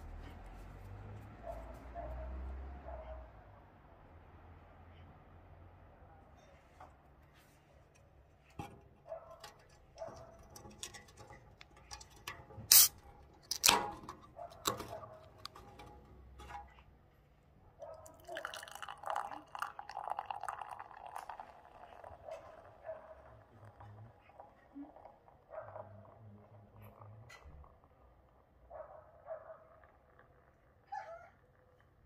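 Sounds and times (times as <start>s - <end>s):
can handling clicks: 10.6s - 15.9s
can tab snapping open: 12.7s - 13.8s
beer pouring into a glass: 18.0s - 28.5s.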